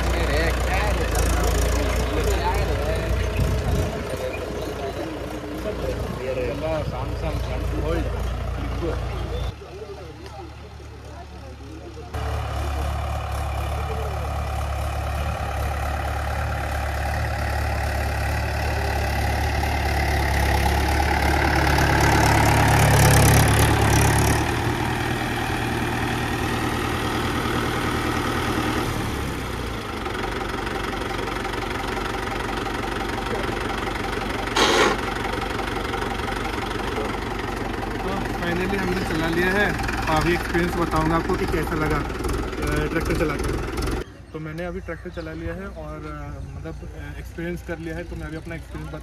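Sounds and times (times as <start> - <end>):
tractor diesel engine running: 0.0 - 49.0
short sharp noise: 34.5 - 35.1.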